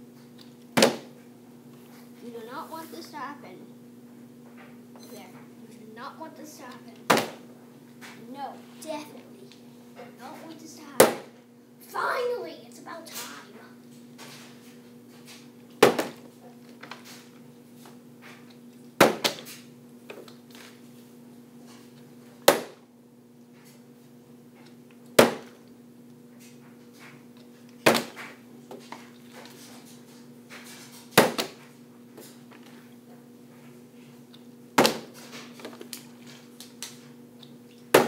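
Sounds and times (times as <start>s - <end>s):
faint steady hum: 0.0s - 38.0s
plastic bottle landing on table: 0.8s - 1.1s, 7.1s - 7.4s, 15.8s - 16.2s, 19.0s - 19.5s, 25.2s - 25.6s, 27.9s - 28.3s, 31.1s - 31.6s, 34.8s - 35.7s.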